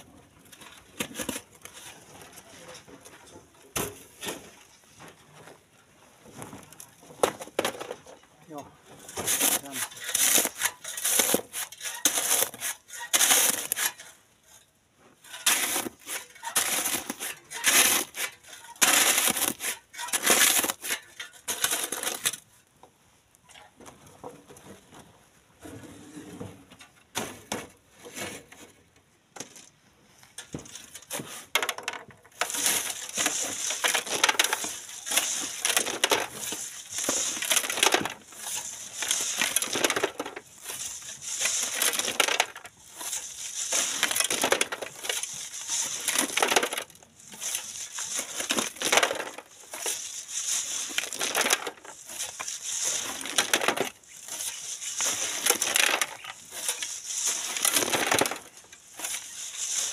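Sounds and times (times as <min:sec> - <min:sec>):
gravel tipped into metal wheelbarrow: 0:06.3 - 0:22.5, 0:30.4 - 0:59.9
shovels scraping sand and gravel: 0:08.5 - 0:22.5, 0:30.7 - 0:31.7, 0:32.3 - 0:59.9.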